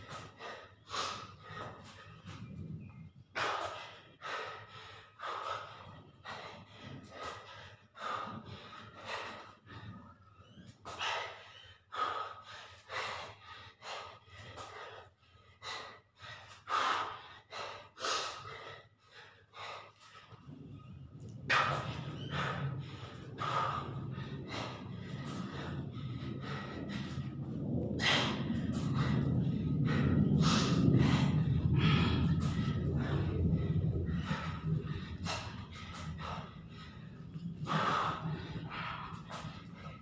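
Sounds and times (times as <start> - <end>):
man breathing hard: 0.0 - 40.0
low hum: 19.6 - 40.0.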